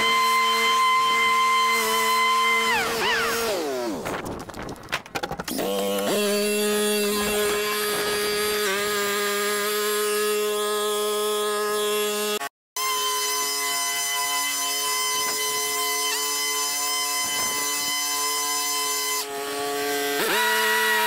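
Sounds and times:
lawn mower whining: 5.2s - 9.2s.

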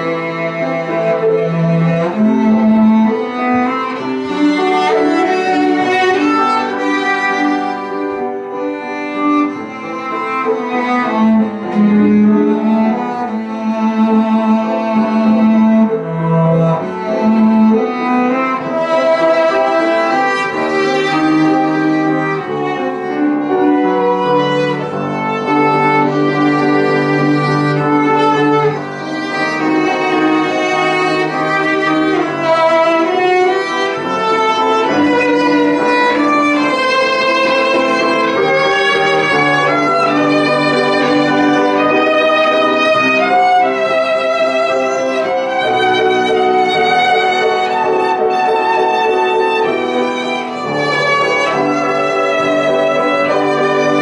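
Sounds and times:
bowed cello: 0.0s - 54.0s
piano accompaniment: 0.0s - 54.0s.

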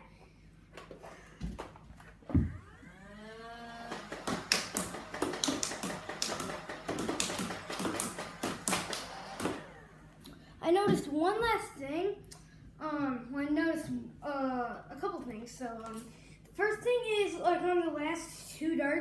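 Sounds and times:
thump: 2.3s - 2.6s
blaster motors whining: 2.3s - 10.3s
rapid dart shots: 3.8s - 9.8s.

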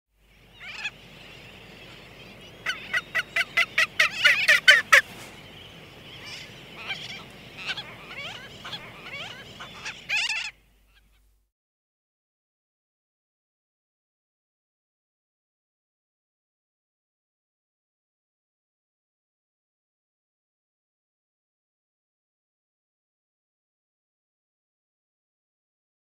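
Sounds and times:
frigatebird calling: 0.2s - 11.3s
tern colony calling: 0.6s - 11.2s.

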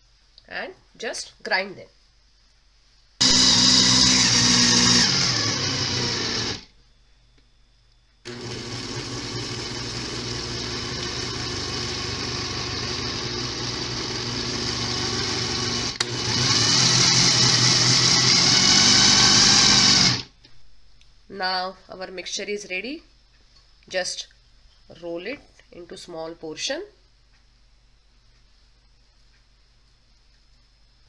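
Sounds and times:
mixer grinder running: 3.2s - 6.7s, 8.3s - 20.3s.

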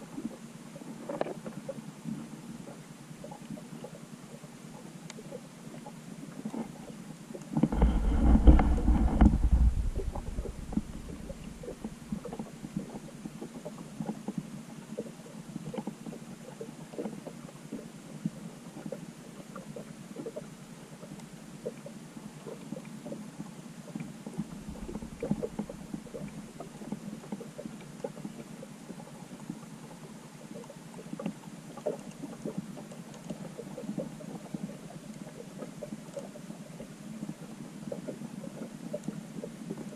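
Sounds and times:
underwater clicks and crackles: 0.0s - 39.9s
low underwater rumble: 7.6s - 15.1s, 23.9s - 39.9s.

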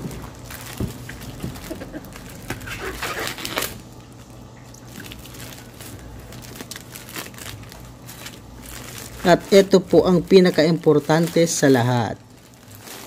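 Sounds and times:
plastic wrapping crinkling and tearing: 0.0s - 13.0s.

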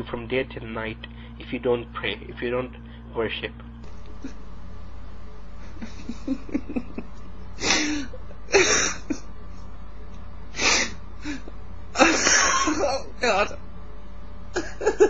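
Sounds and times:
man laughing: 5.6s - 9.5s, 10.6s - 13.6s, 14.6s - 15.0s.

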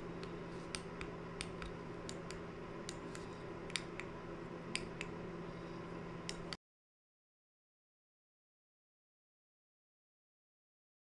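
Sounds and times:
steady low hum: 0.0s - 6.6s.

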